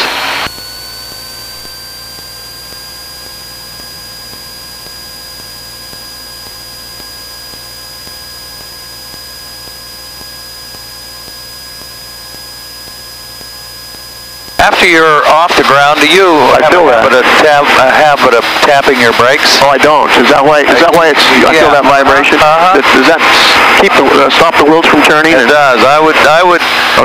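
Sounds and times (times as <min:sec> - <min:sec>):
small plane engine drone: 0:00.0 - 0:27.0.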